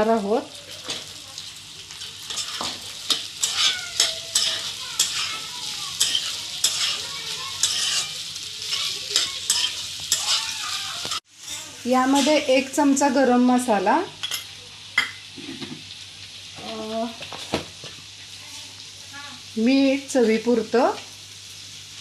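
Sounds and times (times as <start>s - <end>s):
oil sizzling: 0.0s - 22.0s
spatula scraping metal pan: 2.2s - 10.5s.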